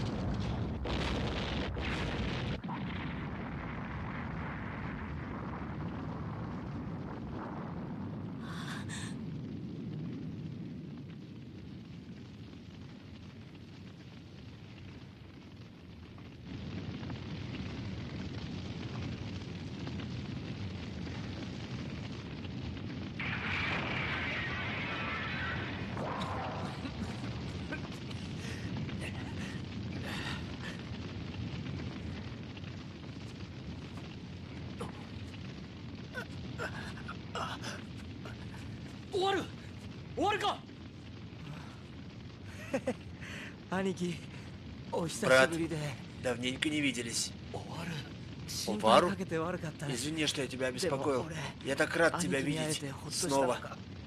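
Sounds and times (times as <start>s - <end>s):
aircraft explosion blast and rumble: 0.0s - 54.0s
blast with hissing rush: 23.2s - 30.8s.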